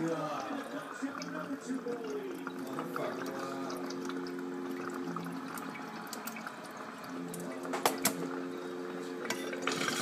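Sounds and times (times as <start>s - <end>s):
water bubbling in a bong: 0.0s - 10.0s.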